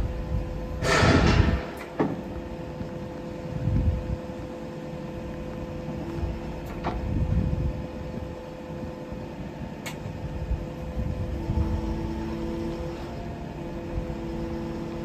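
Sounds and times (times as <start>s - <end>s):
wheel loader engine hum: 0.0s - 15.0s
hydraulic rushing noise: 0.7s - 2.8s.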